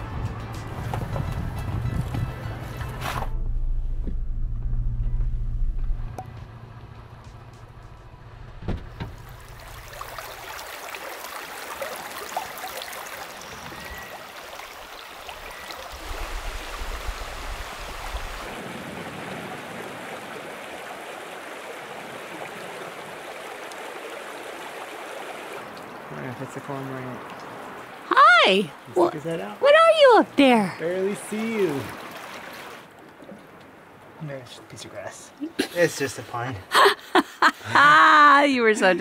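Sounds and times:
low rumble: 0:03.1 - 0:09.7
stream running over stones: 0:09.1 - 0:35.0.

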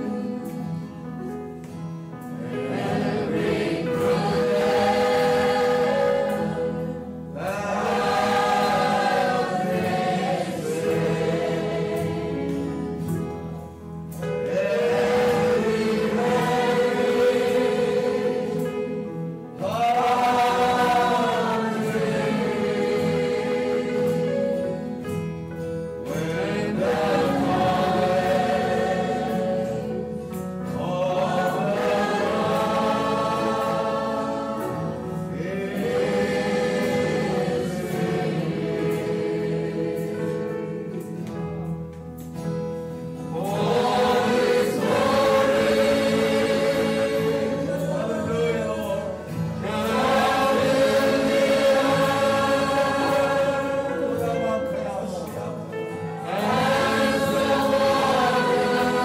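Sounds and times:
choir singing slow song: 0:00.0 - 0:59.0.

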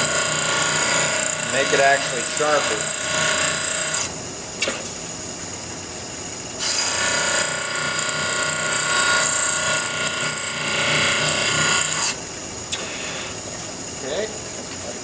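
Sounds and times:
metal grinding hiss: 0:00.0 - 0:03.6
grinder wheel humming: 0:00.0 - 0:04.2.

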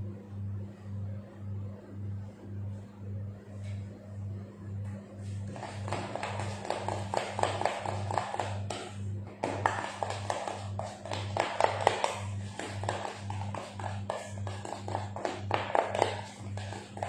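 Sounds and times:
low pulsing hum: 0:00.0 - 0:17.0
utensil tapping in a mixing bowl: 0:05.5 - 0:17.0.

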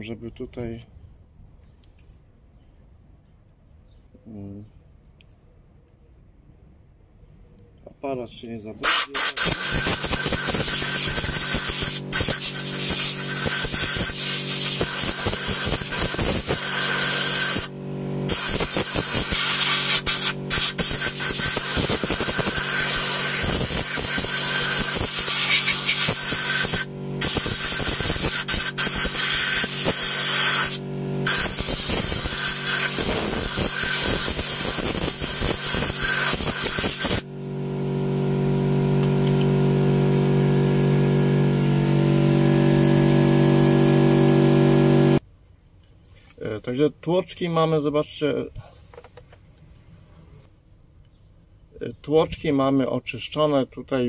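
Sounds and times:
compressed air hissing from blow gun: 0:08.8 - 0:17.7, 0:18.3 - 0:37.2
steady motor hum: 0:09.8 - 0:45.2.

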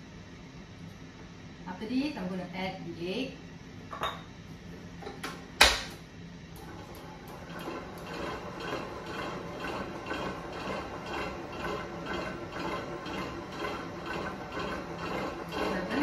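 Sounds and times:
stand mixer whirring: 0:06.6 - 0:16.0.

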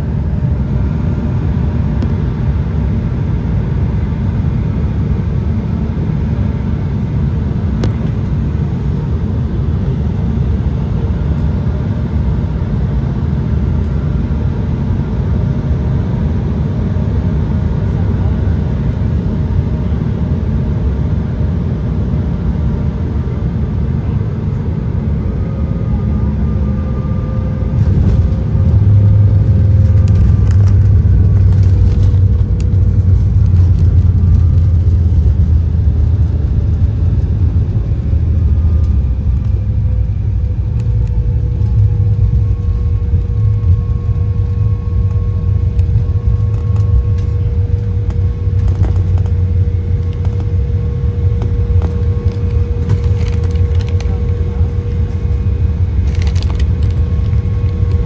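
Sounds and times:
faint engine whine: 0:00.0 - 0:58.0
low rumble of engines and wheels: 0:00.0 - 0:58.0.

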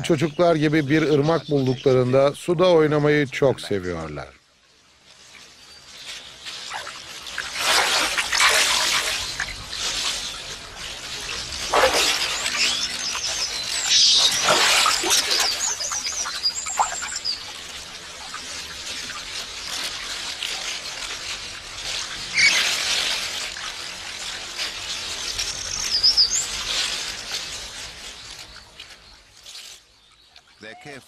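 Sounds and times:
monkeys chirping: 0:00.0 - 0:02.4, 0:10.8 - 0:17.5, 0:22.3 - 0:22.7
water splashing: 0:00.0 - 0:31.0.

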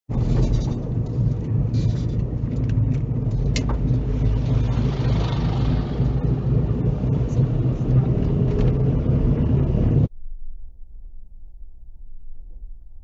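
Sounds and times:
car engine and road noise: 0:00.0 - 0:10.2.

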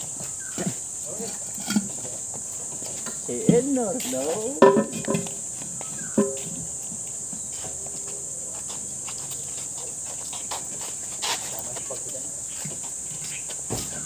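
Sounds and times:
insects buzzing: 0:00.0 - 0:14.0
faint knocks: 0:04.6 - 0:06.7.

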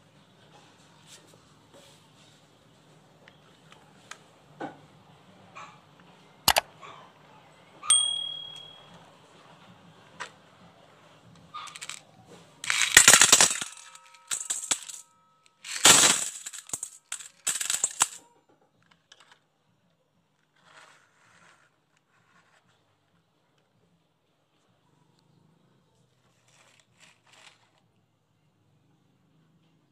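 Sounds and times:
metal bowl ringing: 0:07.9 - 0:09.0
single marble clinks: 0:07.9 - 0:09.0
marbles clattering into metal bowl: 0:11.6 - 0:12.0, 0:12.6 - 0:15.0, 0:15.6 - 0:18.2.

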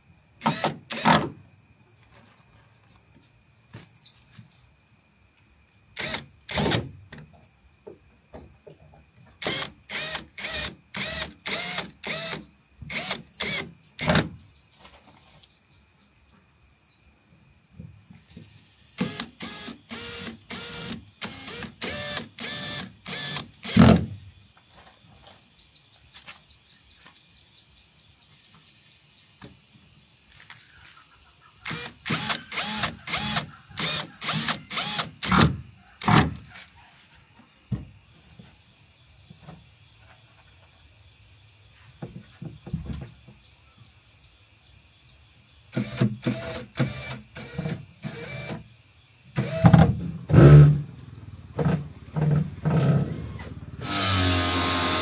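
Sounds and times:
cordless drill driving screws into metal: 0:19.0 - 0:24.1.

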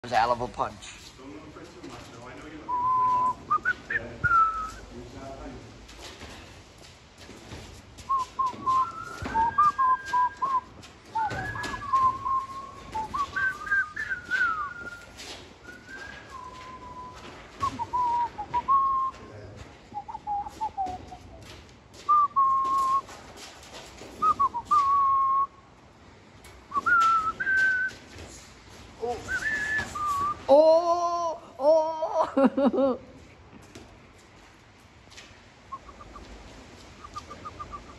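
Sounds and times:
person whistling a tune: 0:02.7 - 0:04.8, 0:08.1 - 0:19.2, 0:20.0 - 0:21.4, 0:22.1 - 0:23.0, 0:24.2 - 0:25.5, 0:26.7 - 0:28.0, 0:29.0 - 0:30.4
thuds and clicks: 0:07.2 - 0:15.0.

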